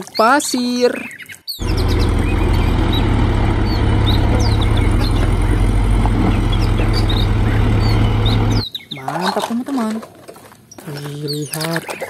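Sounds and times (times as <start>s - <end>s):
birds chirping: 0.0s - 9.9s, 10.6s - 12.0s
diesel truck engine rumbling: 1.6s - 8.6s.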